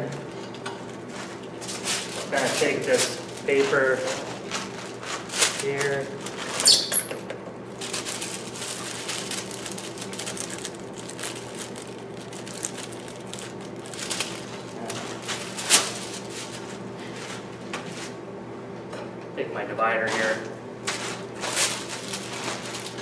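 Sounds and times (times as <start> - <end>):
paper rustling and crinkling: 1.0 - 6.7, 7.7 - 18.2, 20.1 - 23.0.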